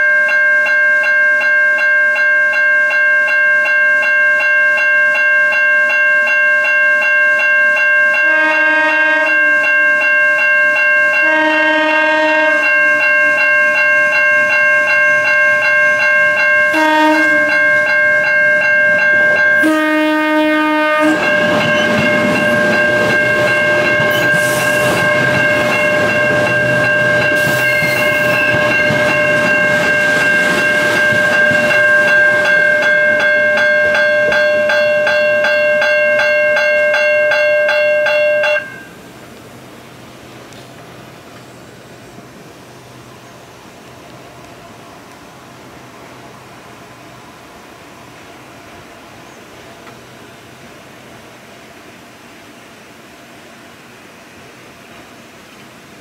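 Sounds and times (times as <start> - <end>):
crossing bell ringing: 0.0 - 39.1
train wheels on rails: 0.0 - 56.0
train horn blasts: 8.2 - 9.9, 11.2 - 13.4, 16.7 - 17.9, 19.6 - 29.2.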